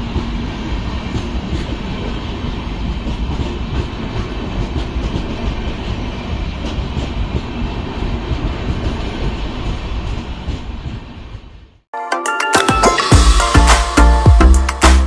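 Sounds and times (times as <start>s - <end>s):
train wheels rumbling on track: 0.0s - 11.9s.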